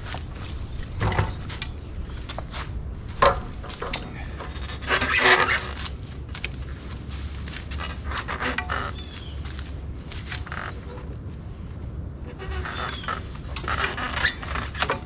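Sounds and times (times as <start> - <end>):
bike rack metallic clatter: 0.0 - 6.6
low steady hum: 0.0 - 15.0.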